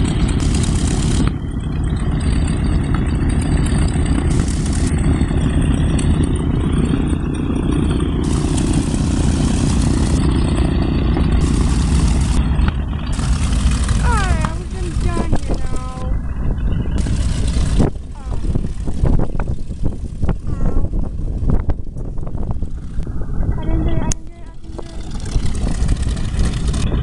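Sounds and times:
piston engine rumble: 0:00.0 - 0:27.0.

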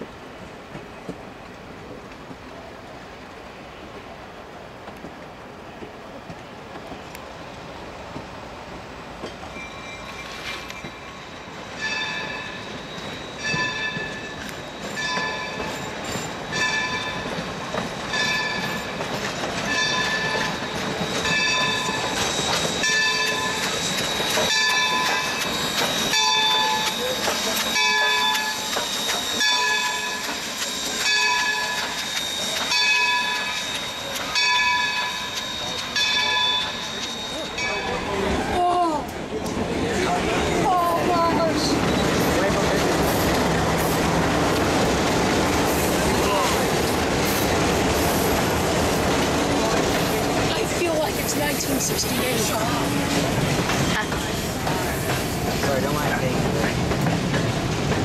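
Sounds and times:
locomotive bell ringing: 0:09.3 - 0:38.5.

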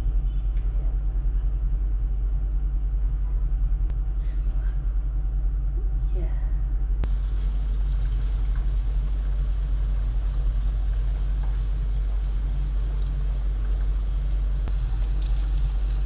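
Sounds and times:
constant low hum: 0:00.0 - 0:16.0
tofu sizzling in hot oil: 0:07.1 - 0:16.0.

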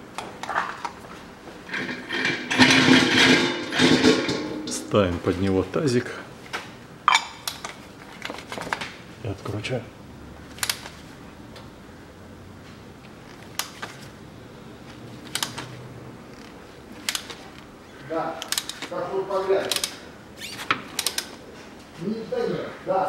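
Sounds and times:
sharp metal clicks: 0:10.6 - 0:11.0, 0:15.2 - 0:15.7, 0:17.0 - 0:17.7, 0:18.4 - 0:18.9, 0:19.6 - 0:20.0, 0:20.9 - 0:21.4.

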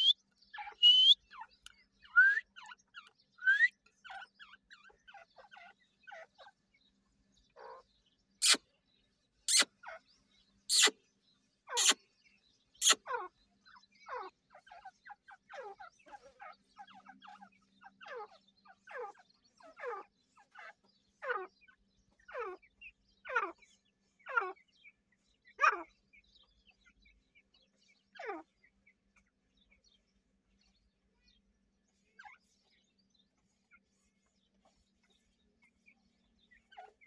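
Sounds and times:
francolins calling: 0:00.0 - 0:06.4, 0:08.4 - 0:08.6, 0:09.5 - 0:10.0, 0:10.7 - 0:11.0, 0:11.7 - 0:12.0, 0:12.8 - 0:27.4
faint broken chirps: 0:00.8 - 0:01.2.

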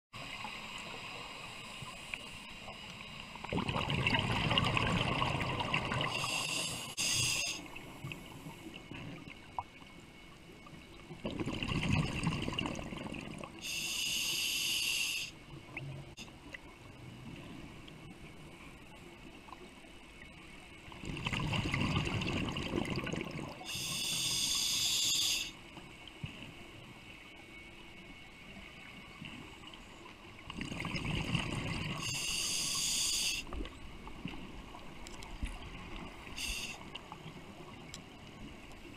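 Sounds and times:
diver exhaust bubbles: 0:03.5 - 0:06.5, 0:11.2 - 0:13.4
regulator inhale hiss: 0:06.1 - 0:07.8, 0:13.6 - 0:15.4, 0:23.6 - 0:25.6, 0:32.0 - 0:33.6, 0:36.2 - 0:37.0.

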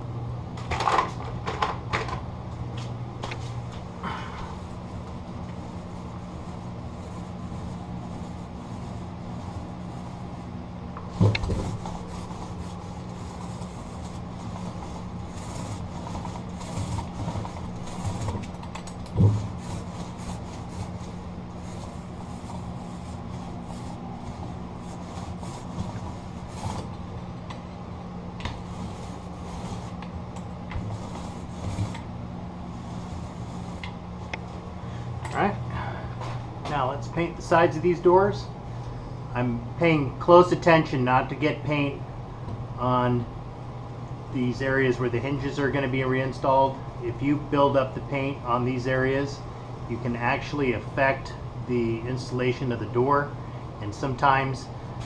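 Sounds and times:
steady low hum: 0:00.0 - 0:55.0
paint roller rubbing on door: 0:04.0 - 0:27.1, 0:28.5 - 0:34.3.

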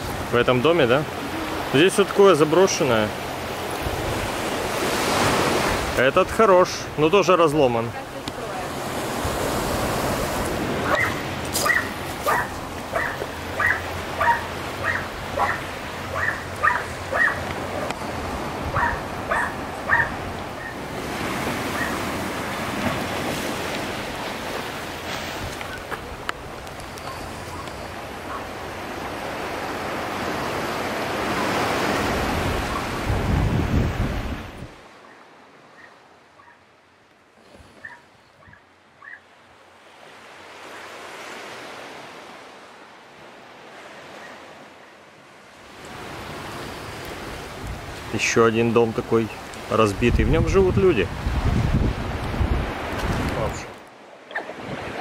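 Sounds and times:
surf washing: 0:00.0 - 0:55.0
wind: 0:00.0 - 0:55.0
dog barking: 0:10.8 - 0:17.4, 0:18.7 - 0:20.8, 0:21.7 - 0:22.0, 0:28.3 - 0:28.5, 0:35.8 - 0:36.6, 0:37.8 - 0:39.2, 0:54.3 - 0:54.6.

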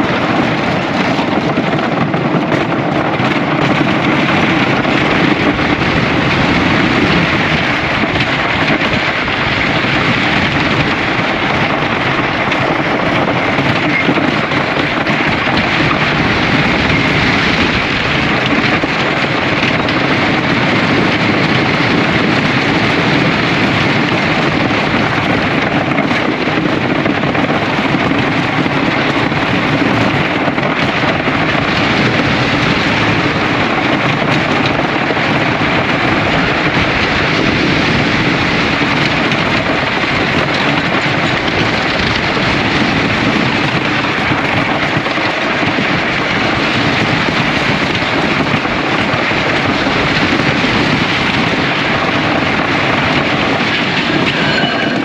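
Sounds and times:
wheels rumbling on wooden track: 0:00.0 - 0:55.0
wind rushing over microphone: 0:00.0 - 0:55.0.

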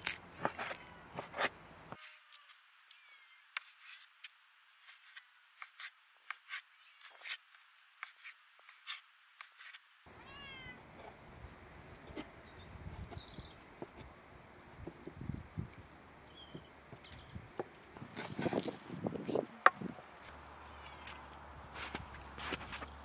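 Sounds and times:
cat meowing: 0:10.1 - 0:10.8.

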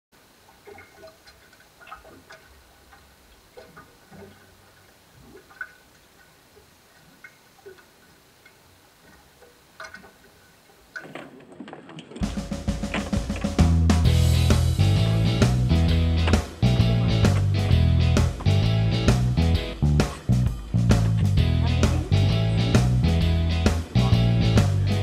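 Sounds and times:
water lapping against boat: 0:00.5 - 0:13.6.

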